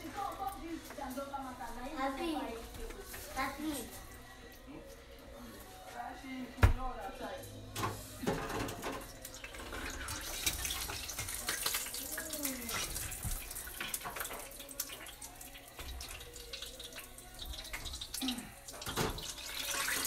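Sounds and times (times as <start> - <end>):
liquid splashing and dripping: 8.4 - 20.0.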